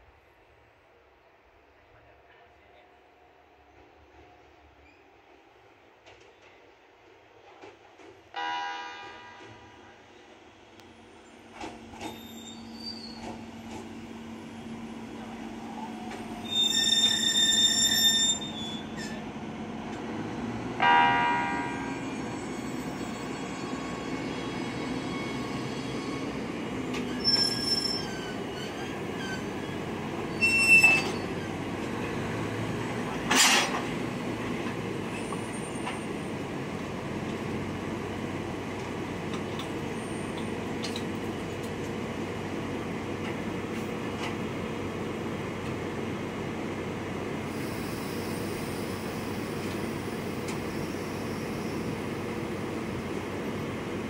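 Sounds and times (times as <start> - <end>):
high squeals from wheels or brakes: 4.8 - 5.1, 12.0 - 13.5, 15.6 - 19.2, 21.7 - 31.6, 47.5 - 52.2.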